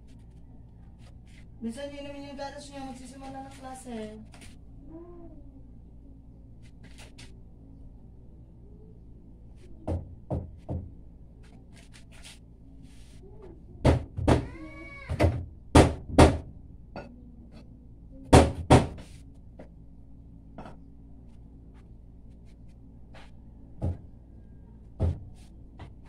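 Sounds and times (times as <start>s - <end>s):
hammer knocking on wood: 9.9s - 10.9s, 13.8s - 16.5s, 23.8s - 24.0s, 25.0s - 26.0s.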